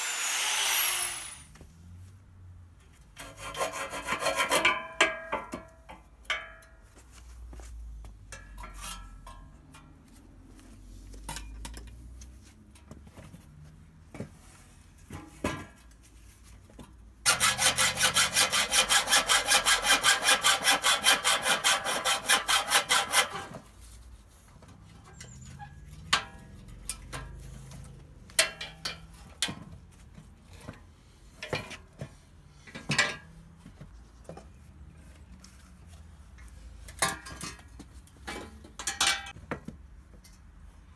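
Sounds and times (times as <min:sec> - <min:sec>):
hacksaw cutting steel tube: 0:00.0 - 0:01.5, 0:03.2 - 0:04.9, 0:17.2 - 0:23.6.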